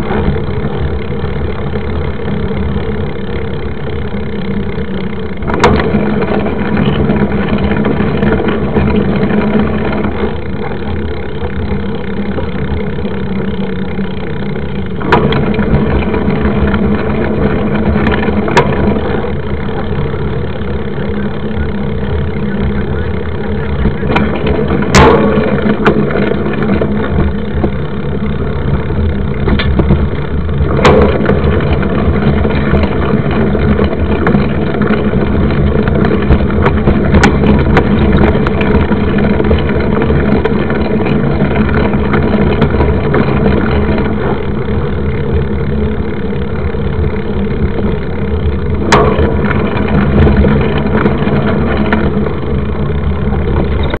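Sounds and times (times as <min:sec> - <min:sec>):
bike frame rattle: 0:00.0 - 0:54.0
bike tyres on gravel: 0:00.0 - 0:54.0.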